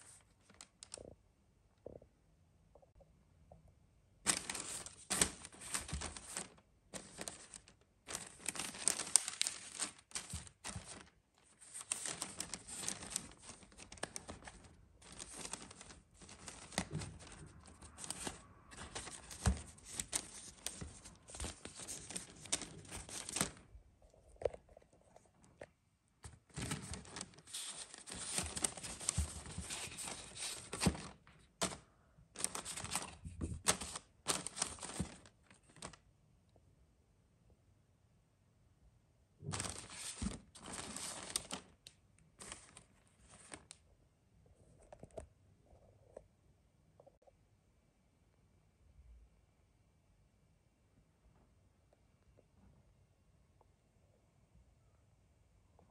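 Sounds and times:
paper rustling and crinkling: 0.0s - 1.0s, 4.3s - 23.7s, 24.4s - 36.0s, 39.4s - 43.8s.

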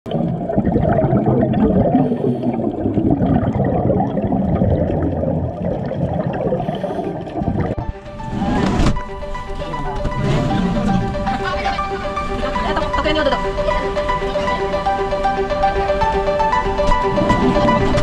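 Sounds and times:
gurgling bubbles: 0.1s - 8.9s
muffled underwater water noise: 0.1s - 12.7s.

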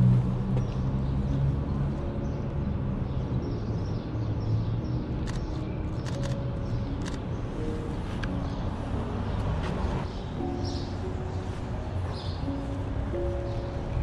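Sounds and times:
city traffic rumble: 0.0s - 14.0s
camera shutter clicks: 5.2s - 6.4s.

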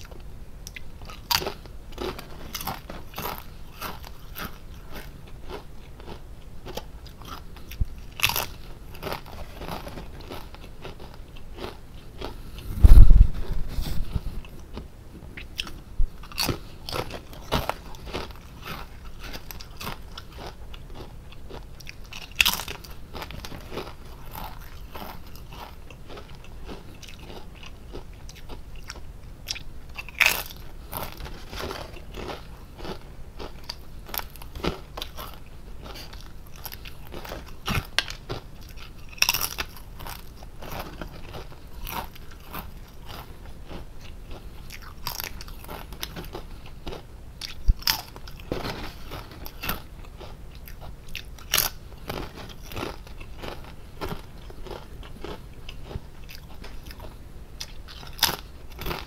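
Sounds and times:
potato chips crackling while chewed: 0.0s - 12.7s, 15.5s - 59.0s.

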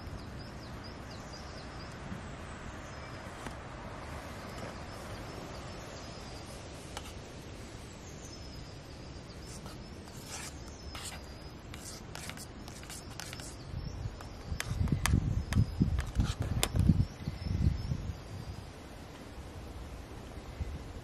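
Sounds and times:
small birds chirping: 0.0s - 18.7s
sharp high clicks and chirps: 9.4s - 16.9s.

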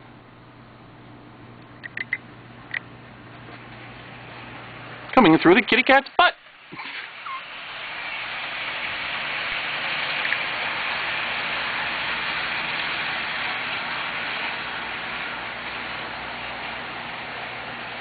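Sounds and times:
model train running on track: 3.8s - 18.0s.

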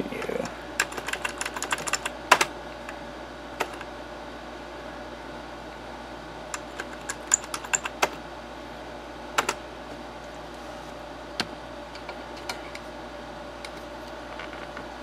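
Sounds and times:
faint hum: 0.0s - 15.0s
keyboard keys clicking: 0.3s - 2.5s, 6.6s - 8.2s.

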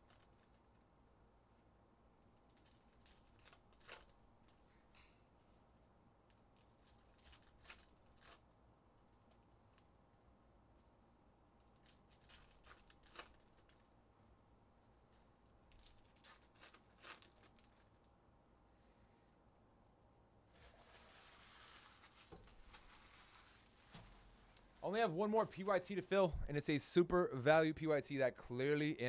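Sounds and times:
foil wrappers tearing and crinkling: 2.4s - 4.6s, 6.5s - 8.5s, 11.6s - 13.9s, 15.7s - 18.0s, 20.5s - 24.6s.

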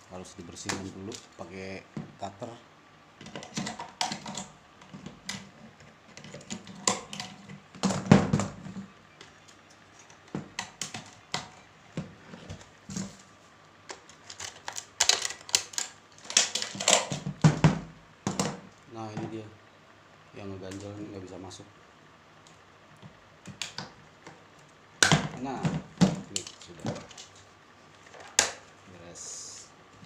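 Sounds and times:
plastic parts clicking and knocking: 3.2s - 13.2s, 13.8s - 19.4s, 23.0s - 27.4s, 28.0s - 28.7s.

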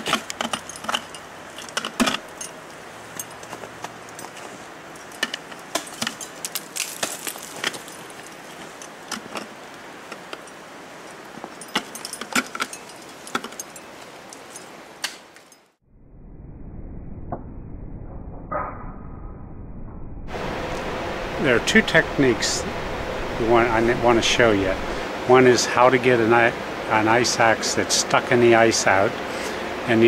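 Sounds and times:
metal gear clinking: 0.0s - 15.7s
crampons kicking into ice: 6.7s - 8.1s
low muffled rumble: 16.0s - 25.4s.

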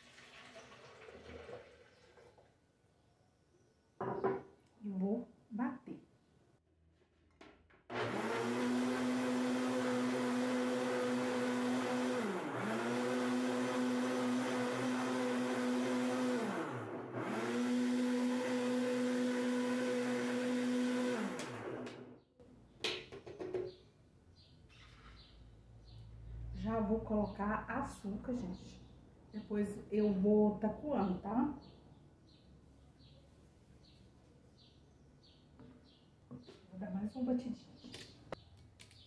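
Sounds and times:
blender running: 7.9s - 22.2s.

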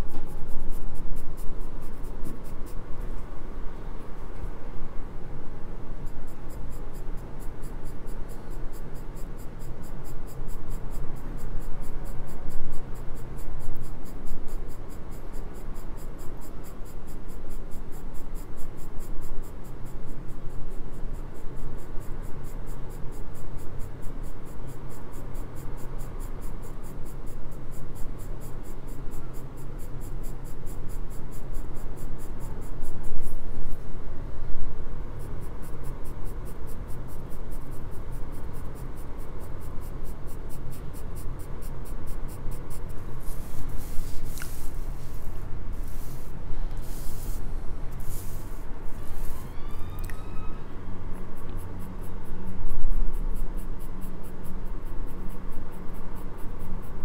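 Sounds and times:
pencil scratching on paper: 0.3s - 2.8s, 42.2s - 47.4s.

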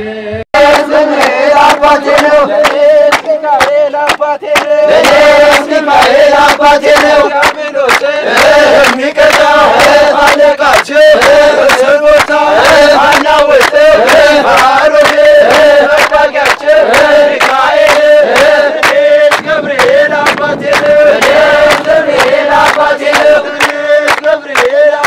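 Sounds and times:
men singing a hymn: 0.0s - 25.0s
hand clapping: 0.6s - 25.0s.

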